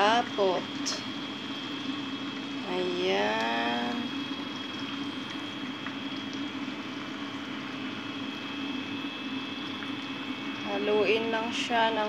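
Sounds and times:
steady hum and hiss: 0.0 - 12.0
sauce simmering in a pot: 0.1 - 11.0.

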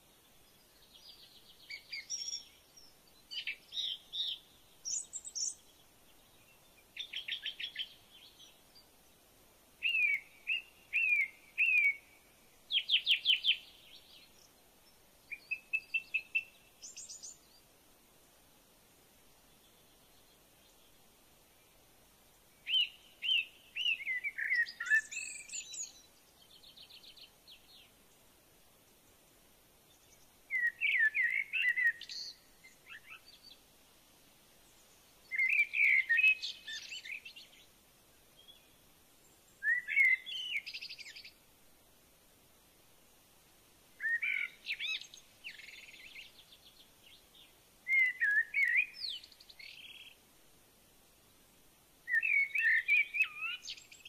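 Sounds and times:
bird twittering song: 0.1 - 9.2, 9.8 - 17.7, 22.6 - 28.3, 29.8 - 33.7, 34.6 - 41.4, 44.0 - 50.2, 52.0 - 54.0.

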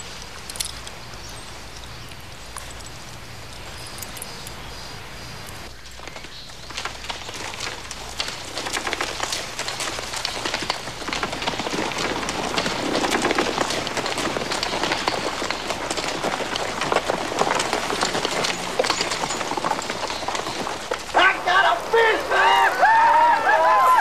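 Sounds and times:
horse hooves walking on dirt: 0.0 - 24.0.

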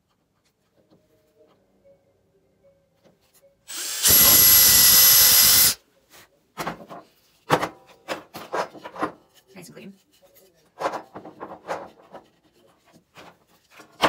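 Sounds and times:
cordless drill drilling wood: 3.7 - 5.8
knocks and clatter on wooden bench: 6.6 - 9.2, 10.7 - 14.0.

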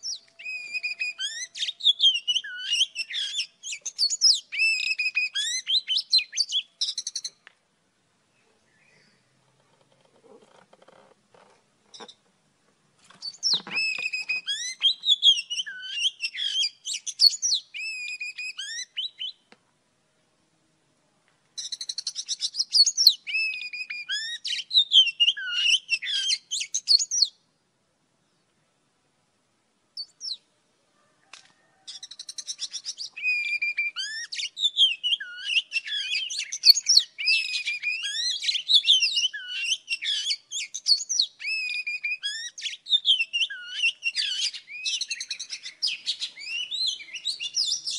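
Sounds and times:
bird singing whistles and trills: 0.0 - 7.4, 13.2 - 19.4, 21.6 - 27.4, 30.0 - 30.4, 31.9 - 47.9.

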